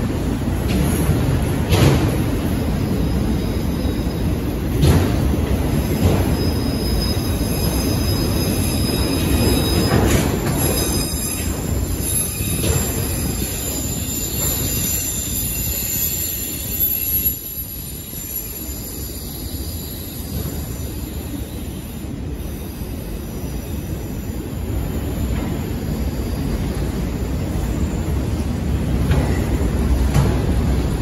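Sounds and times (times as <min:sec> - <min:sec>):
freight train rumble: 0:00.0 - 0:31.0
high-pitched wheel squeal: 0:06.3 - 0:21.5.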